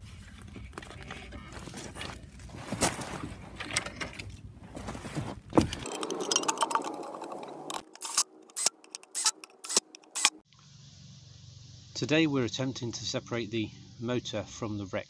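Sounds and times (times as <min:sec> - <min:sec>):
metal parts scraping and rattling: 0:00.2 - 0:10.4.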